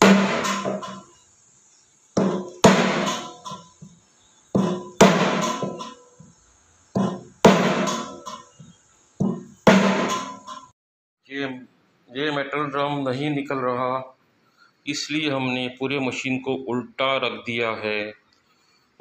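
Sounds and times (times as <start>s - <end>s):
hammer blows on metal shaft: 0.0s - 1.1s, 2.2s - 6.3s.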